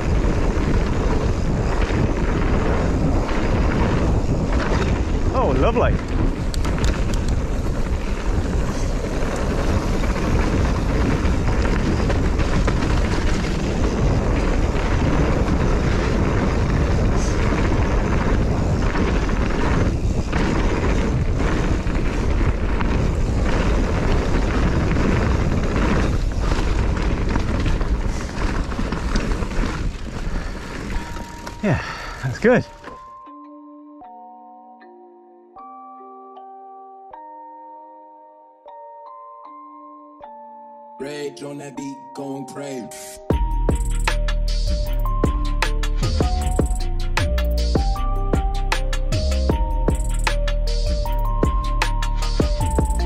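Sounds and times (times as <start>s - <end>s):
wind buffeting microphone: 0.0s - 32.8s
bike clattering over bumps: 0.0s - 33.0s
bike tyres rolling on dirt: 0.0s - 33.2s, 43.3s - 53.0s.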